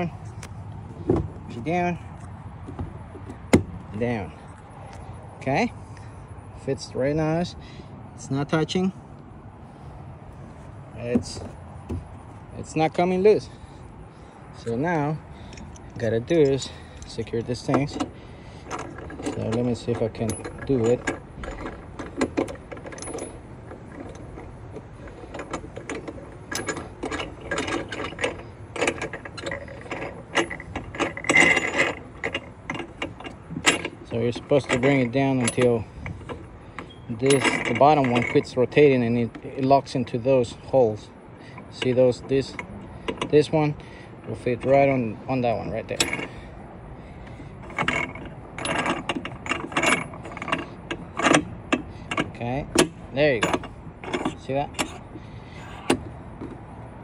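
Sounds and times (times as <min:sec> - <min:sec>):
knob clicking and rattling: 0:14.6 - 0:38.6.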